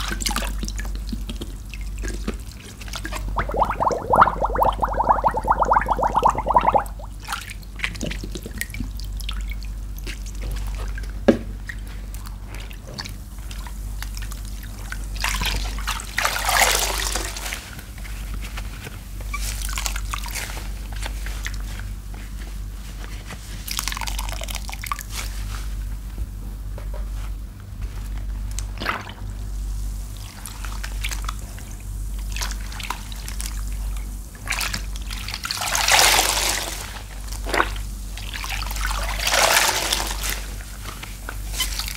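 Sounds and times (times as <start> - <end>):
sponge wrung out gushing water: 3.1 - 7.1, 38.3 - 40.5
water dripping and trickling: 3.2 - 7.1.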